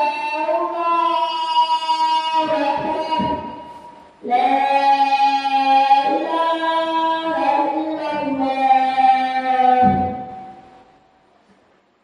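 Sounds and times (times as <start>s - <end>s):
voices chanting a melody: 0.0s - 10.6s.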